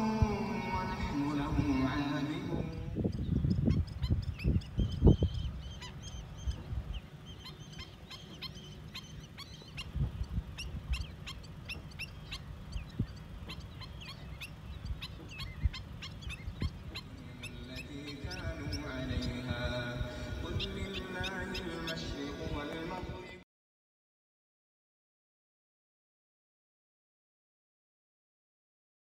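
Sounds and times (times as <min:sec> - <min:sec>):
low rumbling thumps: 0:00.0 - 0:23.2
waterbirds calling: 0:00.0 - 0:23.4.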